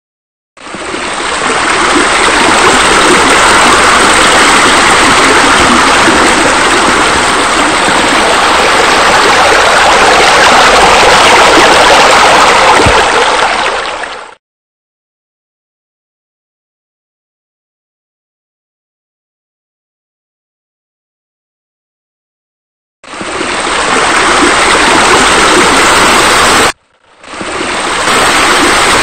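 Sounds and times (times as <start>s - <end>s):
water falling over pool edge: 0.8s - 14.1s, 23.2s - 29.0s.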